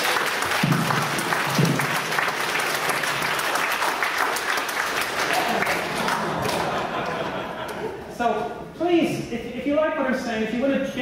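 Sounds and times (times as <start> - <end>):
audience clapping: 0.0 - 7.9.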